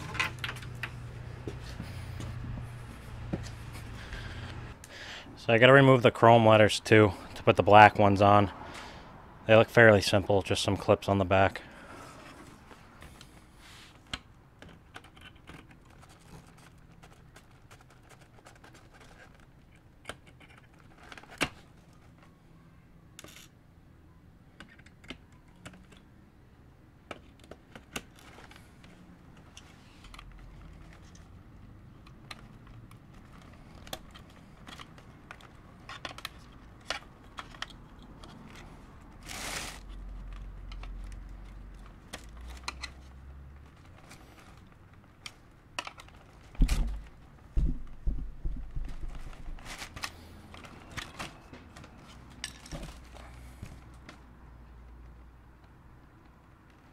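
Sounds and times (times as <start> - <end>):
plastic scrape: 32.4 - 47.2.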